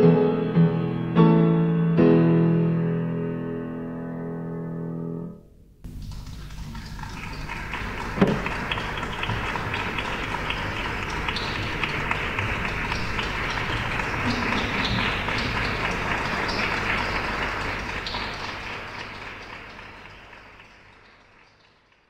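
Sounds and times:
audience applauding: 0:06.0 - 0:22.0.

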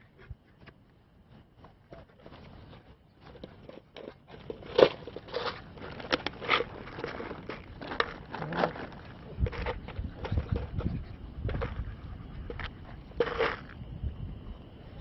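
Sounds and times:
plastic bottle crinkling and crunching: 0:03.3 - 0:10.9, 0:12.5 - 0:13.8.

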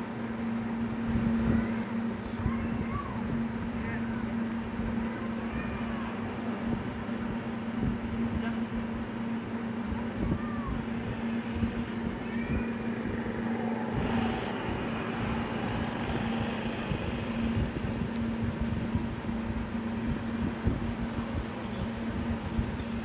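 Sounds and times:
rough outdoor noise: 0:00.4 - 0:23.0
motor humming: 0:05.5 - 0:21.0.

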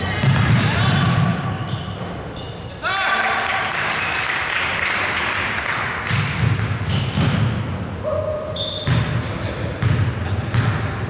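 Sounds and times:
sneakers squeaking: 0:00.0 - 0:02.9, 0:06.1 - 0:11.0
basketball bouncing on wooden floor: 0:00.2 - 0:01.2, 0:06.1 - 0:07.6, 0:08.8 - 0:09.2.

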